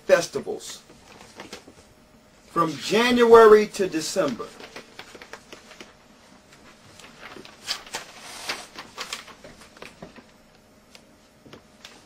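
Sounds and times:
paper rustling and crackling: 0:04.2 - 0:10.4.

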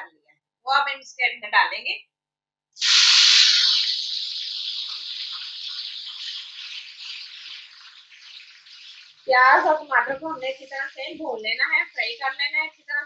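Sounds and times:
paste sizzling in hot oil: 0:02.8 - 0:13.0.

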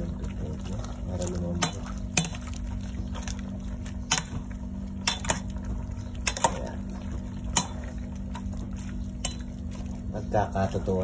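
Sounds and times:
liquid splashing: 0:00.0 - 0:11.0
steady low hum: 0:00.0 - 0:11.0
metal ladle clinking on pot: 0:05.0 - 0:05.5.

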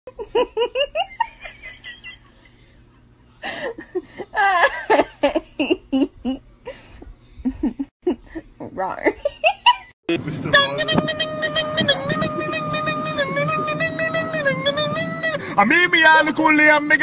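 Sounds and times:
person laughing: 0:00.1 - 0:02.8, 0:03.4 - 0:09.9.

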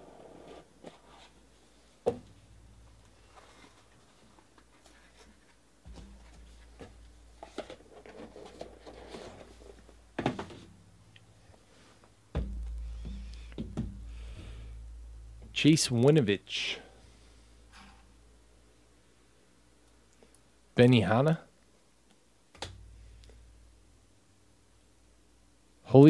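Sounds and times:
cardboard rustling: 0:03.2 - 0:10.7
knock on cardboard box: 0:12.4 - 0:14.0.

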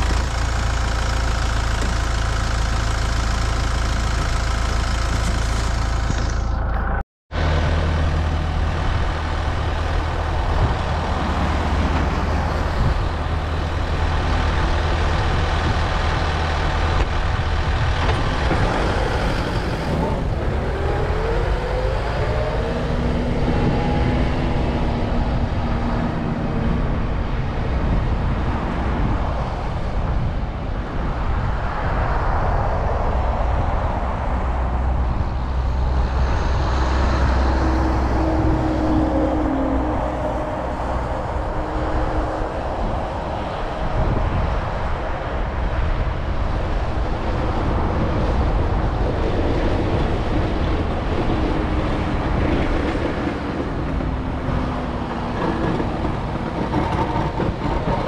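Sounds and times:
tractor diesel engine running: 0:00.0 - 0:21.3, 0:34.2 - 0:58.0.

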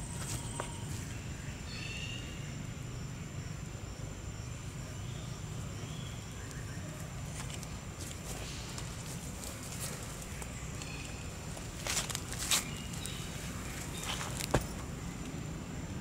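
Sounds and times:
thin high whine: 0:00.0 - 0:02.8.

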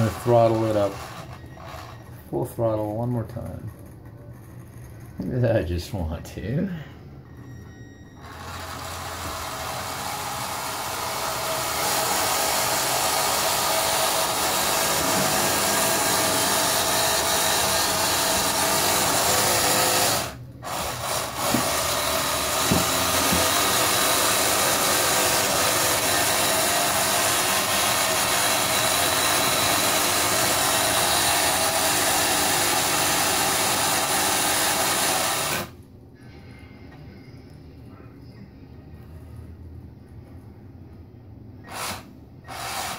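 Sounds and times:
small electric motor whirring: 0:00.0 - 0:02.1, 0:08.2 - 0:35.7, 0:41.6 - 0:42.9.

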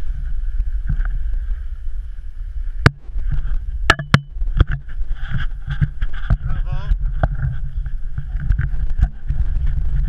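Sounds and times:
wind rumbling over microphone: 0:00.0 - 0:10.0
sharp knocks: 0:03.9 - 0:04.8.

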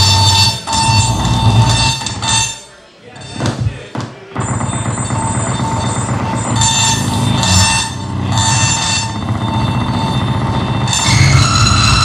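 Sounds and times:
held high tones: 0:00.0 - 0:12.0
electronic noise music: 0:04.4 - 0:12.0.

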